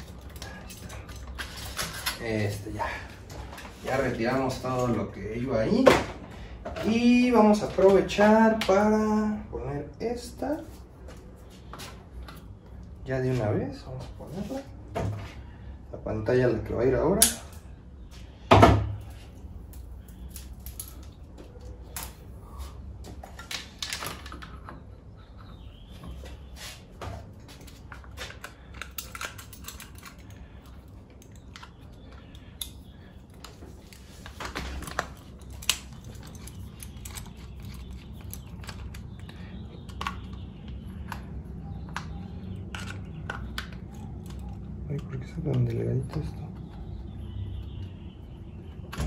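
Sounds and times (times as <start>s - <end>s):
small parts clicking and tapping: 27.6s - 46.8s.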